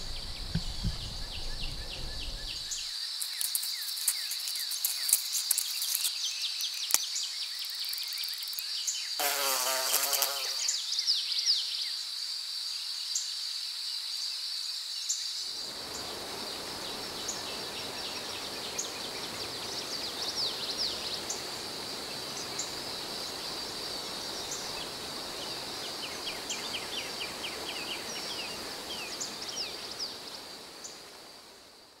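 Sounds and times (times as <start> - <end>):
low rushing noise: 0.0 - 2.8
insects droning high-pitched whine: 0.0 - 32.0.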